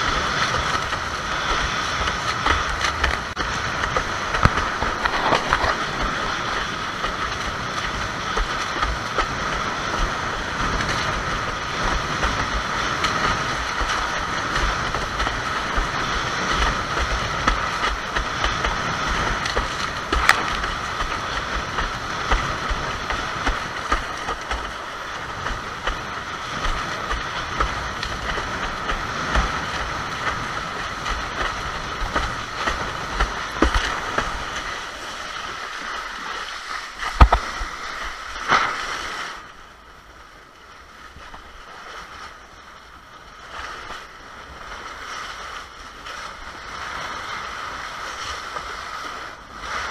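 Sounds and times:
wind buffeting camera: 0:00.0 - 0:39.6
hull slapping on water: 0:00.0 - 0:39.9, 0:40.8 - 0:49.9
rushing water: 0:00.0 - 0:49.9.

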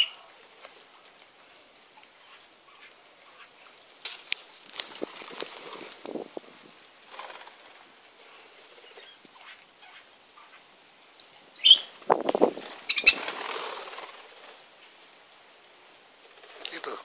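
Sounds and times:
bird wings flapping: 0:04.0 - 0:09.6, 0:11.7 - 0:14.8, 0:16.2 - 0:17.0
high bird chirps: 0:11.6 - 0:11.9, 0:12.9 - 0:13.2.

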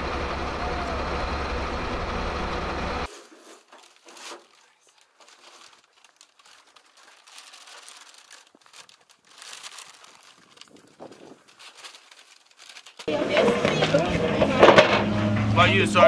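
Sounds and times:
paper wrapping crinkling: 0:03.1 - 0:14.1.

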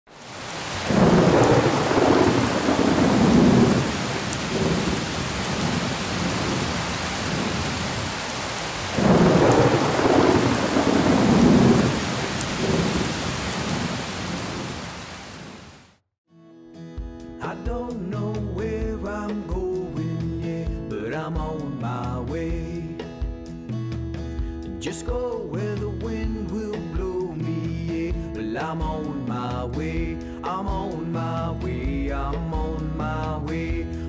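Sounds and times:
steady rain: 0:00.1 - 0:16.0
thunder rolling: 0:00.6 - 0:15.6.

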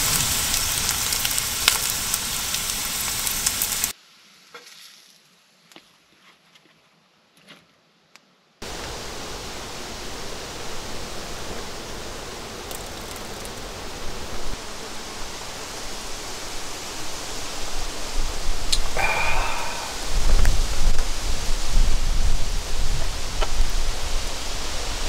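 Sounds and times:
loud steady rushing noise: 0:08.6 - 0:25.0.

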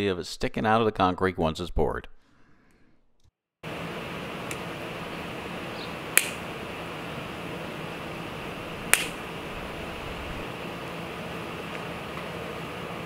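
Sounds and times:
wire cutters snipping: 0:04.4 - 0:04.7, 0:06.1 - 0:06.5, 0:08.7 - 0:09.7.

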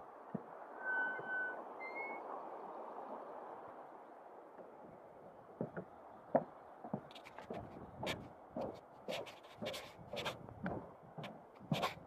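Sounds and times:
footsteps on a trail: 0:06.4 - 0:12.0.

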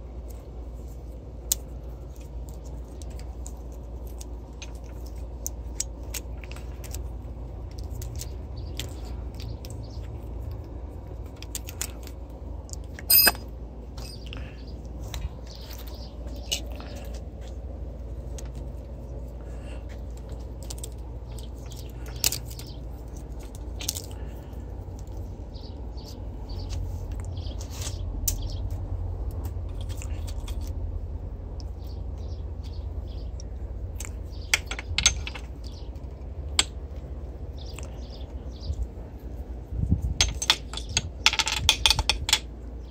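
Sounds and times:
steady low rumble: 0:00.0 - 0:42.9
metal tools clicking and tapping: 0:02.4 - 0:14.4, 0:20.1 - 0:24.2, 0:33.4 - 0:37.9, 0:40.1 - 0:42.6.

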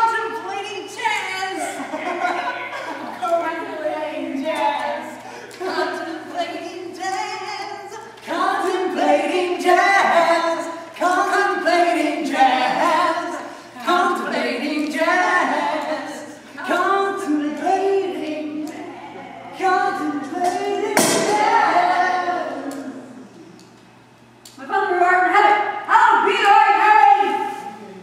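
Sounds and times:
group singing unaccompanied: 0:03.3 - 0:23.5.

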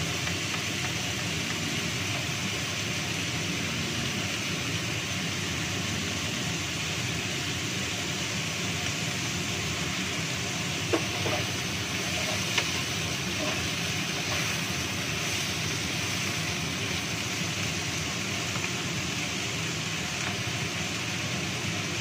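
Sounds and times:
stir-frying hiss in a wok: 0:00.0 - 0:22.0
wooden spatula knocking on pan: 0:10.9 - 0:12.8.

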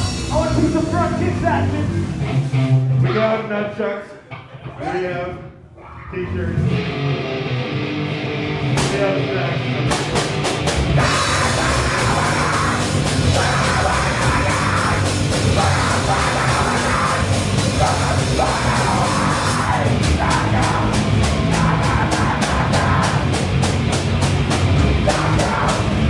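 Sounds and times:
heavy rock band playing: 0:00.0 - 0:03.7, 0:06.4 - 0:26.0
shouted vocals: 0:11.0 - 0:23.5, 0:24.9 - 0:26.0.

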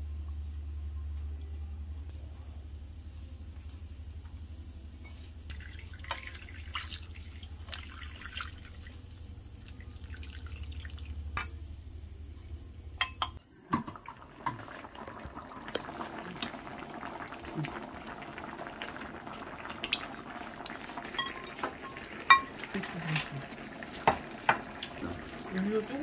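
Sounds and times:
steady low hum: 0:00.0 - 0:21.2
water dripping and trickling: 0:05.5 - 0:11.4.

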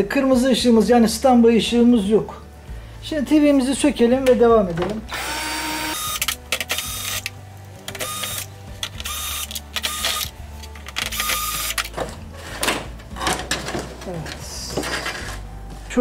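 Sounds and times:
drill motor whirring: 0:05.1 - 0:07.3, 0:08.0 - 0:10.3, 0:11.0 - 0:11.9.

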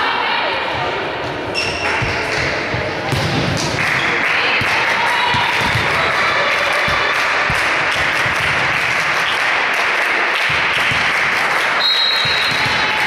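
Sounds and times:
crowd applause in hall: 0:03.7 - 0:13.0.

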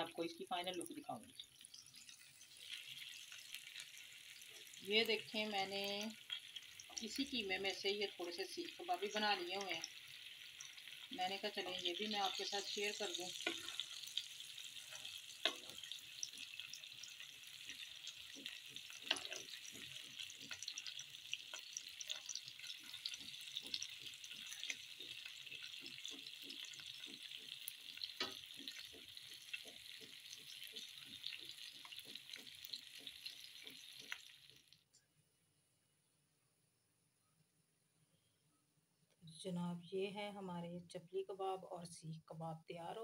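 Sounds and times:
meat sizzling in oil: 0:00.0 - 0:34.8.

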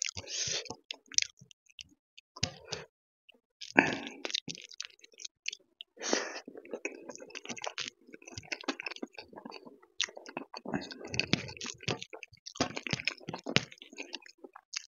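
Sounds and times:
close chewing with mouth clicks: 0:00.0 - 0:02.9, 0:03.6 - 0:14.9.

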